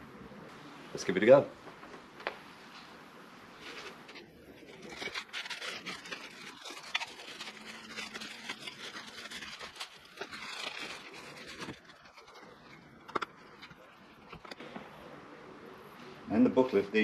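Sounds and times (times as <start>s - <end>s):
plastic wrapping crinkling: 3.5s - 14.6s.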